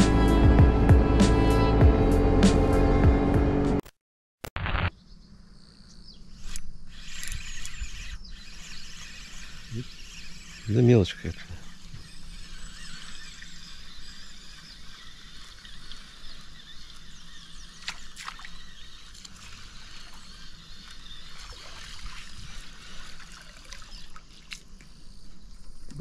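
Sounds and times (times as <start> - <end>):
sharp clicks: 6.4 - 9.8
river water trickling: 6.9 - 25.7.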